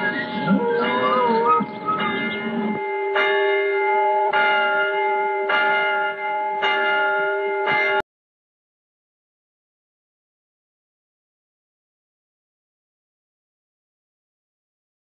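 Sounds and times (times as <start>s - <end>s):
church bell tolling: 0.0s - 8.1s.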